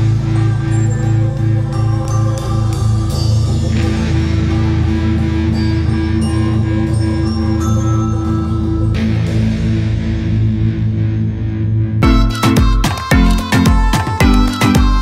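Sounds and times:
guitar music with steady beat: 12.0 - 15.0.

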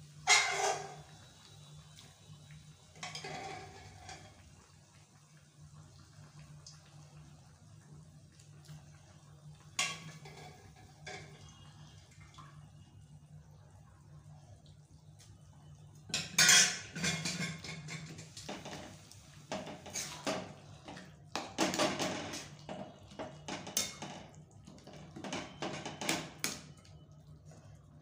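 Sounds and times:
metal ladle scraping a pan: 0.2 - 1.1.

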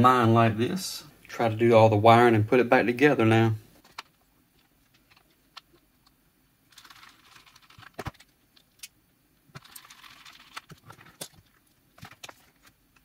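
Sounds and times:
faint rustling of wires: 3.5 - 13.0.

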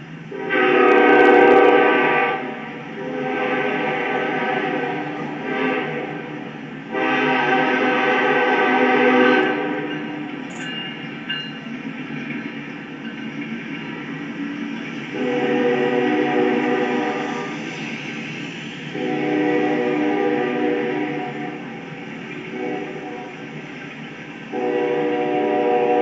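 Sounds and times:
passing train rumble: 0.0 - 26.0
locomotive air horn blasts: 0.3 - 10.1, 15.1 - 17.7, 18.8 - 21.8, 22.5 - 23.6, 24.5 - 26.0.

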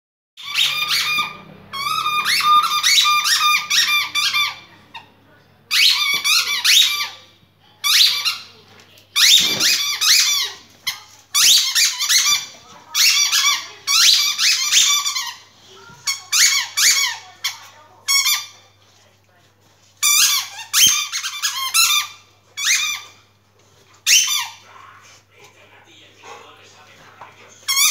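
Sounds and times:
squeaky toy squeaking: 0.4 - 8.5, 9.2 - 18.6, 20.0 - 23.2, 24.0 - 24.6, 27.7 - 27.9.

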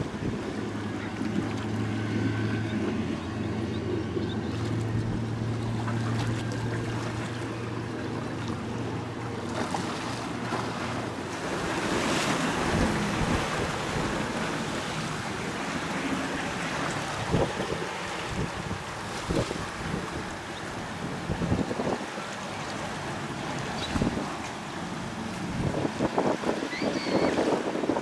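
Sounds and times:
boat engine droning: 0.0 - 28.0
water rushing: 0.0 - 28.0
wind on microphone: 11.4 - 15.6, 17.0 - 22.2, 23.7 - 24.4, 25.4 - 28.0.

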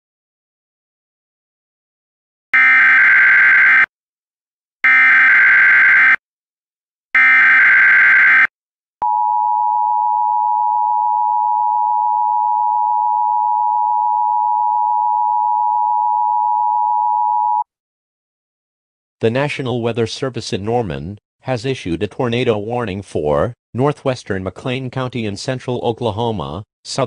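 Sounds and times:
long steady attention tone: 7.2 - 17.6.

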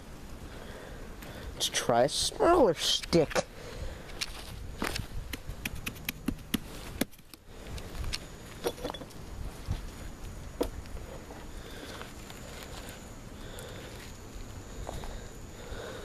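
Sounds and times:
footsteps crunching in snow: 4.2 - 5.2
stick tapping and scraping ice: 5.3 - 7.4.

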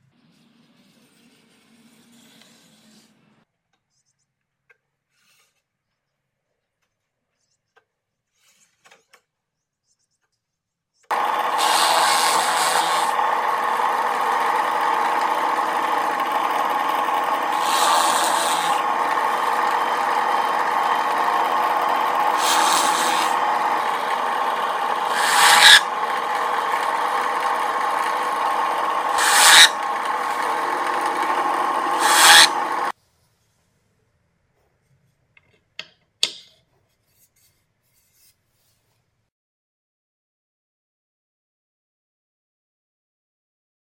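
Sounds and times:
electric drill boring into wood: 11.1 - 32.9.

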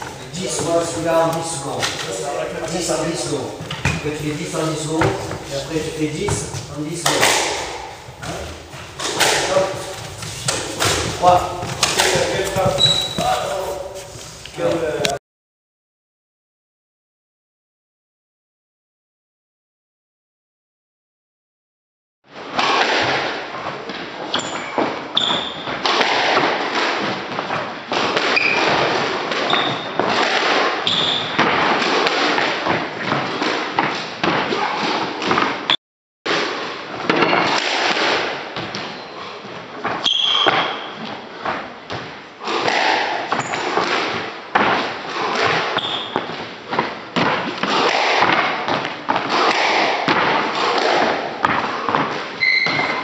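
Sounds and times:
court shoes squeaking: 0.0 - 15.1, 24.3 - 25.9, 28.2 - 30.2, 30.8 - 31.6, 38.6 - 41.4, 43.3 - 44.2, 45.1 - 48.0, 51.5 - 53.0
footsteps on wooden court floor: 0.0 - 15.1.

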